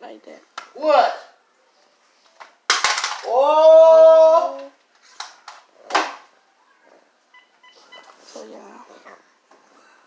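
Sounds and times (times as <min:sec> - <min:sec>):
person shouting long call: 0:03.3 - 0:04.7.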